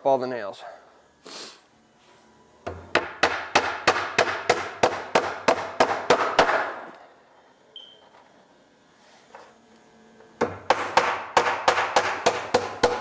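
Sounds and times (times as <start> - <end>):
hammer driving nail into wood: 2.7 - 6.8, 10.4 - 13.0.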